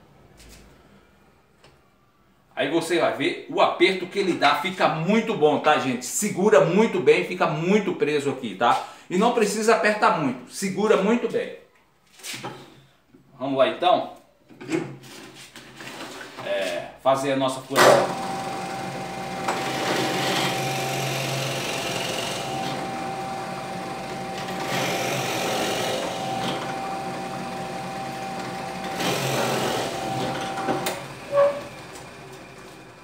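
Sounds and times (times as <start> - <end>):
drill bit boring into wood: 18.0 - 32.4
drill press motor humming: 18.0 - 33.0.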